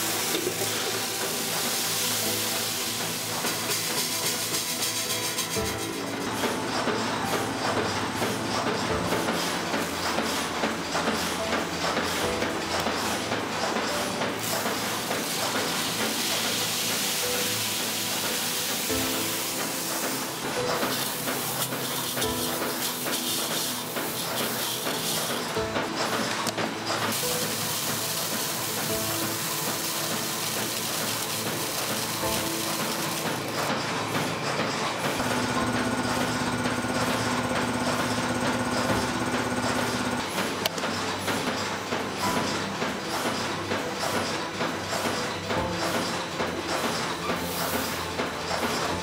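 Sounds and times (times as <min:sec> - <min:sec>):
centrifuge spinning with rushing hiss: 0:00.0 - 0:07.7, 0:09.2 - 0:34.2
background music: 0:00.0 - 0:49.0.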